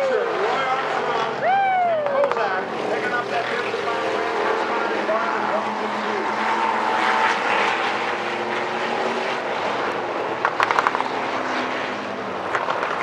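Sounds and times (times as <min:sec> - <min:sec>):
race car engines droning: 0:00.0 - 0:13.0
sharp cracks: 0:10.4 - 0:11.1.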